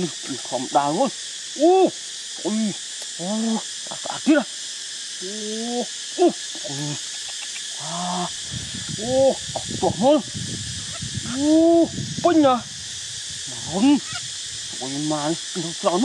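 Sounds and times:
steady high hiss: 0:00.0 - 0:16.0
parakeet chicks calling: 0:07.0 - 0:07.8, 0:10.6 - 0:11.5, 0:13.6 - 0:14.4.

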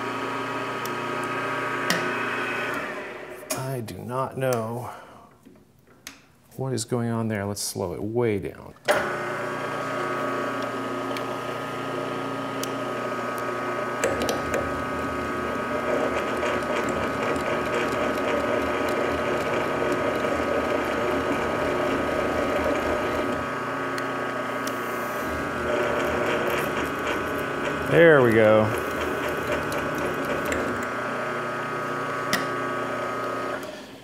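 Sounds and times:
milling machine whine: 0:00.0 - 0:03.5, 0:08.9 - 0:33.9
drill groaning and grinding: 0:09.0 - 0:34.0.

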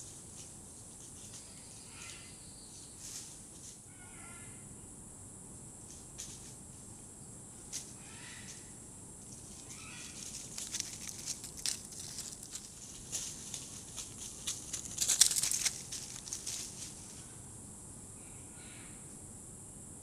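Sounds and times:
high insect buzz: 0:00.0 - 0:20.0
dry leaves crackling and rustling: 0:09.3 - 0:17.2.

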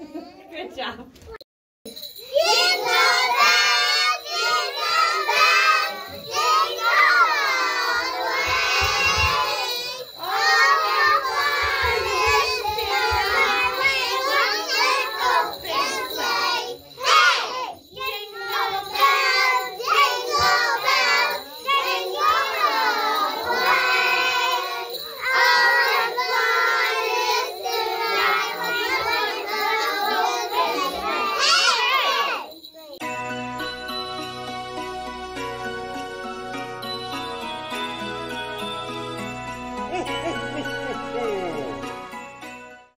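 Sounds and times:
children singing together: 0:02.3 - 0:32.5.

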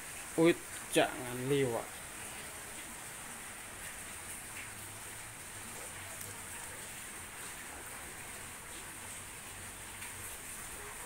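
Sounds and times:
rain falling on floodwater: 0:00.0 - 0:11.0.

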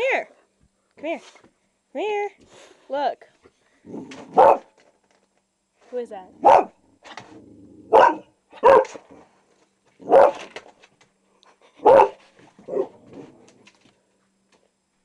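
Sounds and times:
dog barking: 0:04.3 - 0:04.7, 0:06.4 - 0:06.8, 0:07.9 - 0:09.0, 0:10.0 - 0:10.5, 0:11.8 - 0:13.0.

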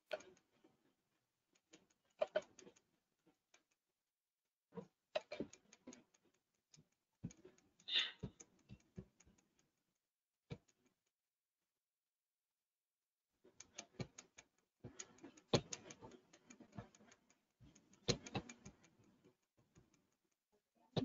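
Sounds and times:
mouse clicks: 0:01.6 - 0:02.9, 0:13.6 - 0:20.1
computer keyboard keystrokes: 0:01.6 - 0:03.7, 0:13.6 - 0:20.2.

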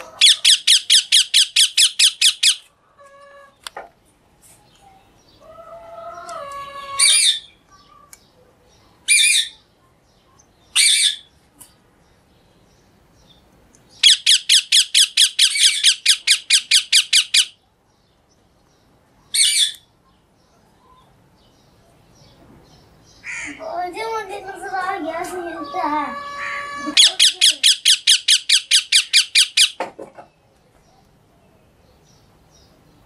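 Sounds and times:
parakeets screeching: 0:00.0 - 0:02.7, 0:06.6 - 0:07.6, 0:09.1 - 0:09.6, 0:10.8 - 0:11.3, 0:14.0 - 0:17.6, 0:19.4 - 0:19.8, 0:23.2 - 0:23.7, 0:24.5 - 0:29.8.

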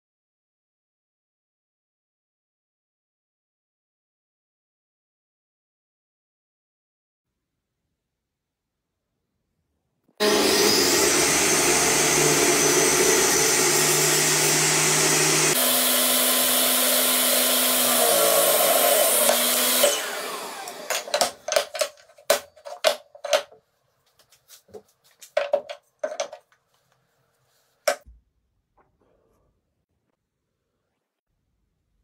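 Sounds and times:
table saw running: 0:10.2 - 0:23.0
wooden knocks and taps: 0:20.9 - 0:23.6, 0:24.2 - 0:26.6, 0:27.9 - 0:28.2.

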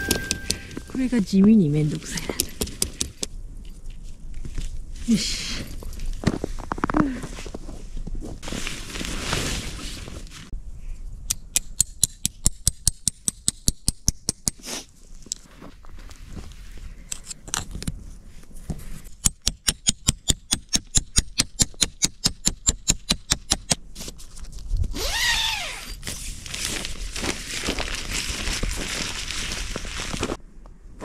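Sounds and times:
footsteps crunching in snow: 0:07.4 - 0:10.5, 0:26.3 - 0:30.4.

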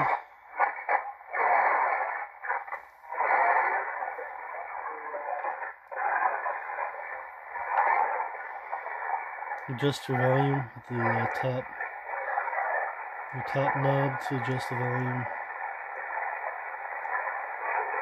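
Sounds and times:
hissy radio voice: 0:00.0 - 0:00.2, 0:03.1 - 0:18.0.

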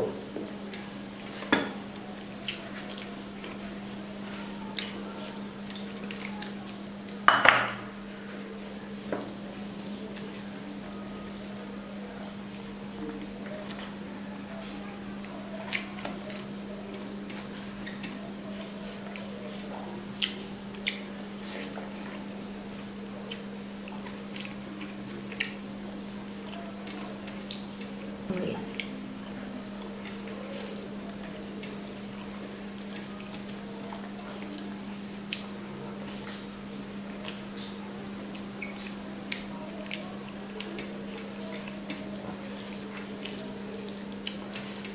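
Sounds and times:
wet chewing: 0:00.6 - 0:07.2, 0:14.6 - 0:36.5, 0:37.1 - 0:44.9
squishy eating sounds: 0:00.6 - 0:07.3, 0:09.6 - 0:44.9
lip smacks: 0:20.2 - 0:21.1.

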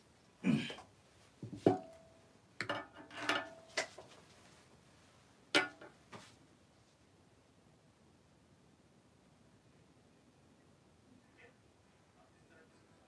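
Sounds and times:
objects knocking on a table: 0:01.4 - 0:01.9.

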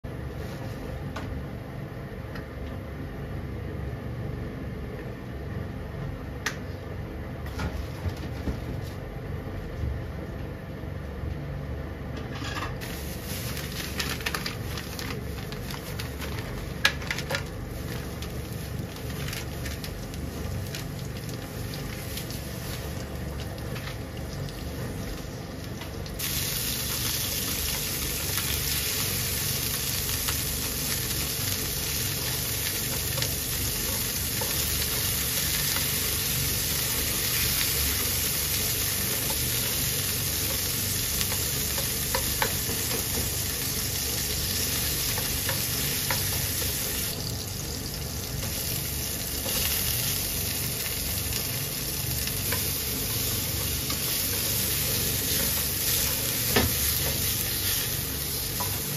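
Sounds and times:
meat sizzling in oil: 0:12.8 - 0:58.9
oil crackling: 0:12.8 - 0:58.9.

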